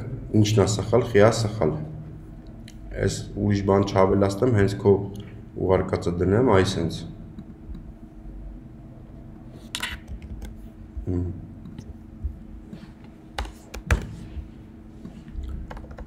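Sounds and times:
faint steady hum: 0.0s - 16.0s
computer keyboard clicks: 15.4s - 16.0s.

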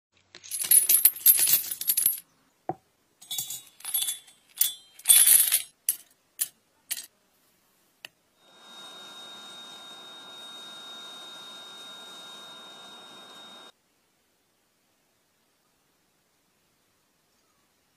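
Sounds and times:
copper pipes clinking: 3.2s - 7.1s
steady hiss with high whine: 7.4s - 17.9s.

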